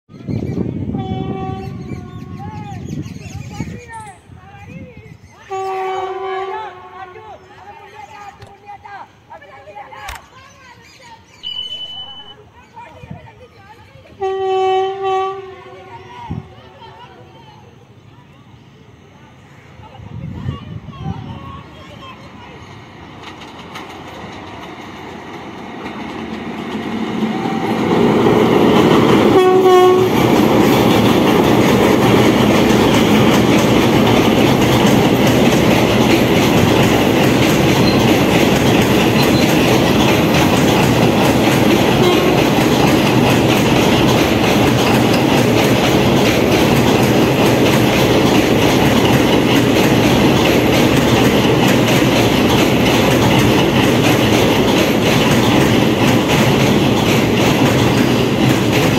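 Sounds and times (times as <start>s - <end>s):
train rumble: 0.2s - 58.9s
train horn blast: 0.9s - 1.9s, 5.5s - 7.4s, 14.2s - 16.5s, 29.3s - 30.3s, 42.0s - 42.6s
wheels clacking over rail joints: 22.1s - 58.9s.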